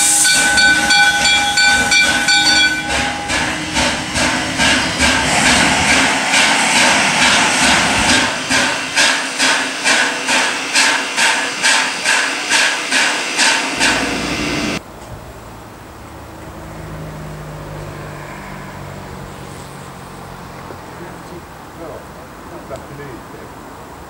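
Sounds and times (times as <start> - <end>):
steam locomotive chuffing: 0.0 - 14.8.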